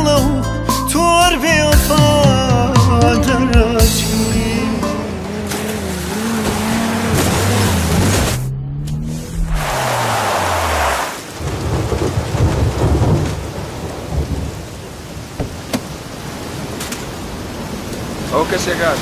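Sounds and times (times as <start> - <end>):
car engine winding down: 4.0 - 11.3
surf washing: 4.1 - 8.5, 9.4 - 19.0
wind: 4.1 - 19.0
tyres hissing through water: 9.5 - 11.3.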